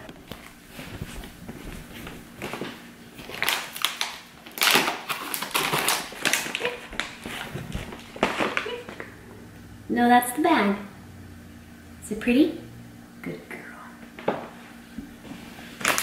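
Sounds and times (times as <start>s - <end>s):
foil pouch crinkling: 0.1s - 9.1s, 15.8s - 16.0s.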